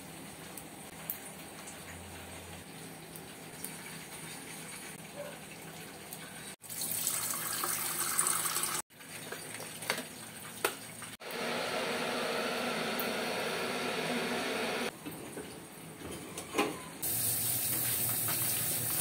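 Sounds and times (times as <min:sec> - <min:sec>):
water pouring into kettle: 0:06.6 - 0:09.6.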